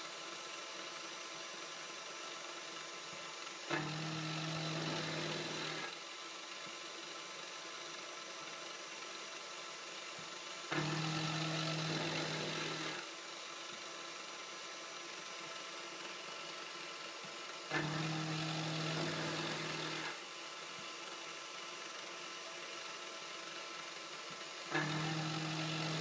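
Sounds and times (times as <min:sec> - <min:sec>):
milling machine cutting metal: 0:03.7 - 0:05.9, 0:10.7 - 0:13.0, 0:17.7 - 0:20.2, 0:24.7 - 0:26.0.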